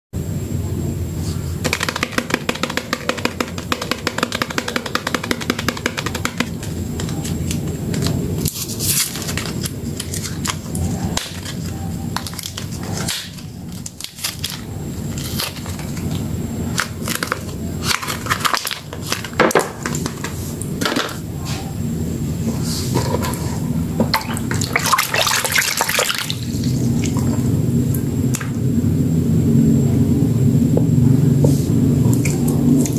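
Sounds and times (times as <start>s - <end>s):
paper wrapper tearing: 7.4s - 11.6s, 12.2s - 16.1s.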